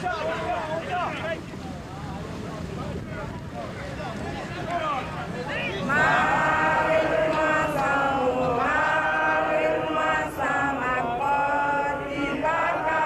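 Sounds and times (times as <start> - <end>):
voices singing a chant: 5.5 - 13.0.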